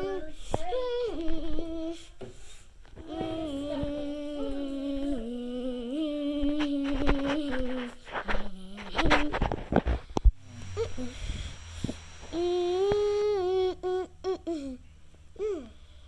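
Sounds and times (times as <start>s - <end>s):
child humming: 0.0s - 2.3s, 3.0s - 16.0s.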